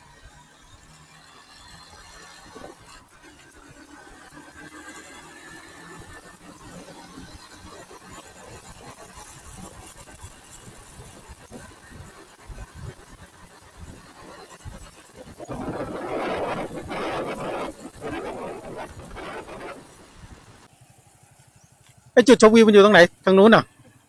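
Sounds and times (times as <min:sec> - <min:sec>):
faint engine hum: 0:00.0 - 0:22.2
road and wind noise: 0:00.0 - 0:24.0
low wind rumbles: 0:10.7 - 0:20.7.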